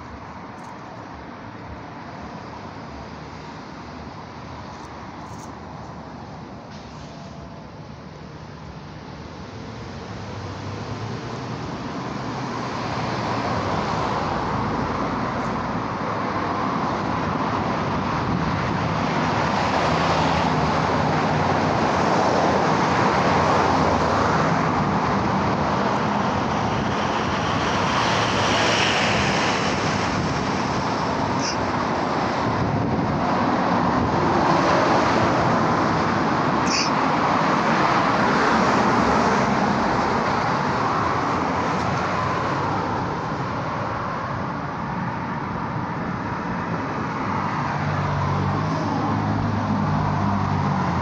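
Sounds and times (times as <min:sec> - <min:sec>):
passing vehicles rushing: 0:00.0 - 0:51.0
high-pitched chirps: 0:36.6 - 0:36.9.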